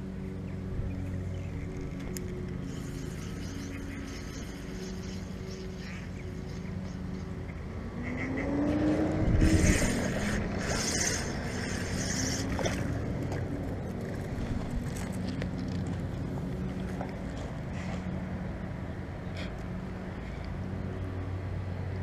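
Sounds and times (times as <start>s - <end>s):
motor engine running: 0.0s - 22.0s.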